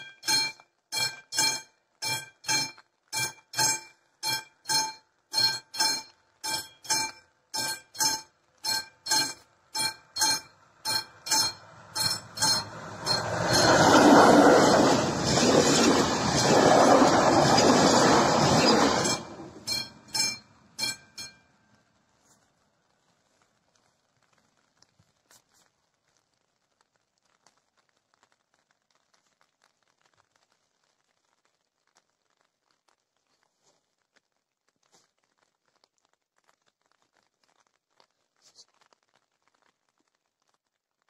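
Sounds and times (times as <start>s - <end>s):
level crossing bell ringing: 0.0s - 14.2s, 19.0s - 21.4s
train rushing rumble: 11.8s - 19.8s.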